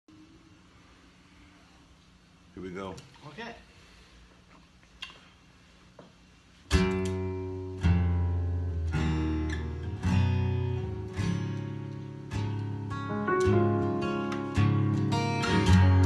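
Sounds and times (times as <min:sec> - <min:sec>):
acoustic guitar strumming chords: 0:06.7 - 0:16.0.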